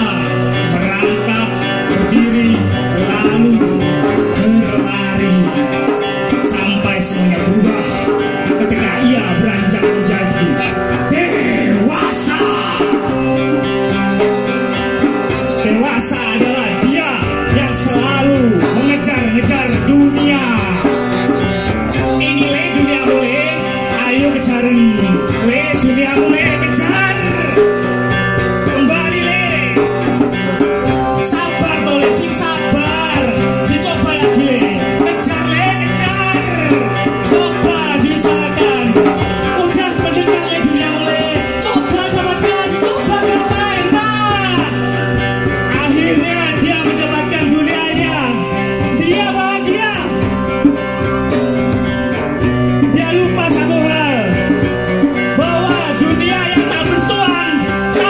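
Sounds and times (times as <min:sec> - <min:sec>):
man singing into microphone: 0:00.0 - 0:30.1, 0:30.9 - 0:51.0, 0:52.8 - 0:58.0
strummed acoustic guitar: 0:00.0 - 0:58.0.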